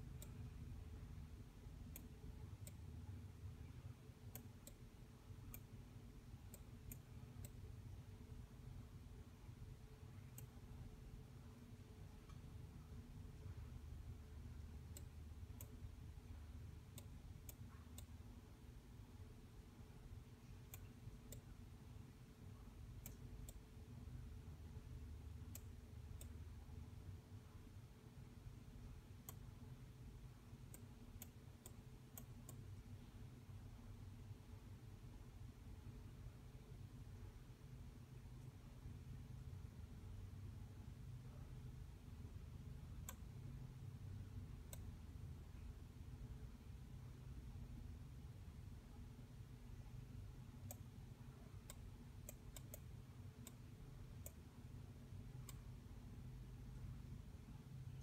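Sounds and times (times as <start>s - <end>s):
low steady hum: 0.0s - 58.0s
computer mouse clicks: 0.1s - 0.6s, 1.8s - 3.6s, 4.2s - 5.8s, 6.4s - 7.8s, 10.2s - 10.8s, 14.8s - 15.9s, 16.9s - 18.3s, 20.6s - 21.6s, 22.8s - 24.0s, 25.4s - 26.5s, 29.1s - 29.7s, 30.6s - 33.0s, 42.9s - 43.5s, 44.4s - 45.2s, 50.2s - 54.5s, 55.3s - 55.8s.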